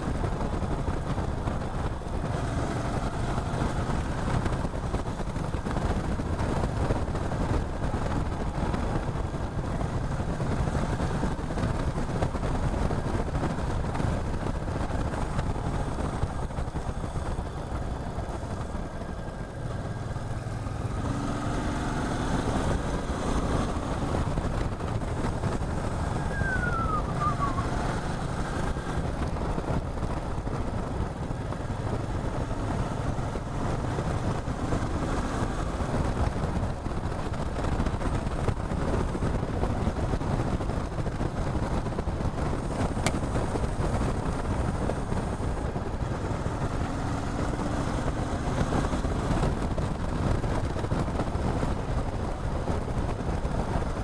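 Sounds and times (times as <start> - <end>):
motorcycle engine running: 0.0 - 54.0
wind rushing on microphone: 0.0 - 54.0
short falling whine: 26.2 - 27.8.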